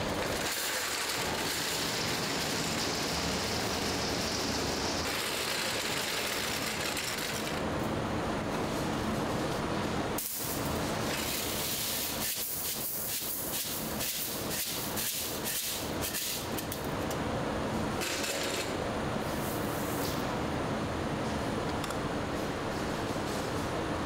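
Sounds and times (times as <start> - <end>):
factory machinery noise: 0.0 - 24.0.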